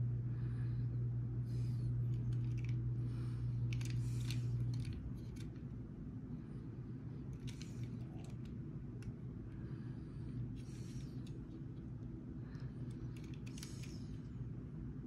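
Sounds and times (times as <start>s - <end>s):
steady low hum: 0.0s - 15.0s
fingers handling toy car: 3.7s - 5.6s, 12.9s - 14.2s.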